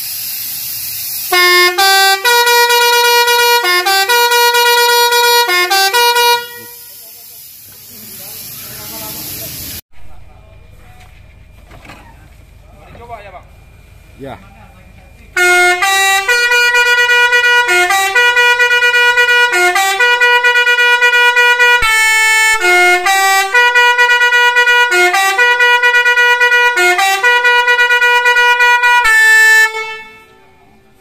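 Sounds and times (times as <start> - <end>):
bus air horn playing a tune: 1.2 - 7.0, 15.4 - 31.0.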